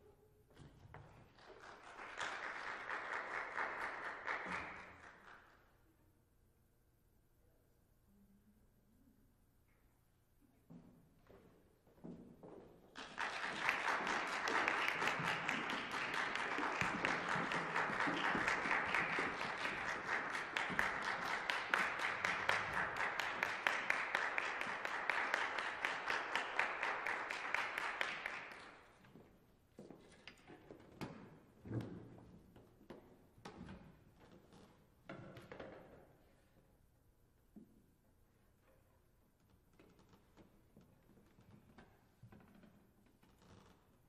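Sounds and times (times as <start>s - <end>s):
audience applauding: 1.4s - 5.4s, 12.9s - 29.0s.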